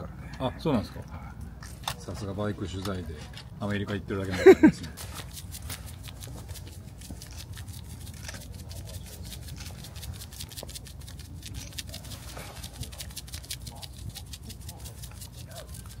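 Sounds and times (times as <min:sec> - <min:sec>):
seasoning shaker rattling: 0:04.4 - 0:16.0.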